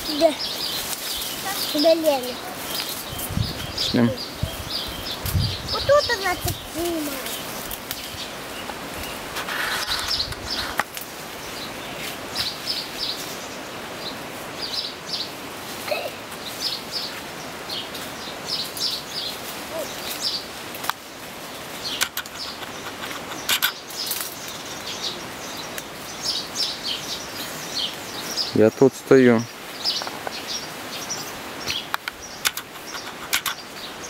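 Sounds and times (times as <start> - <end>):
small birds chirping: 0.0 - 34.0
steady outdoor hiss: 0.0 - 34.0
sharp clicks or knocks: 31.7 - 33.6.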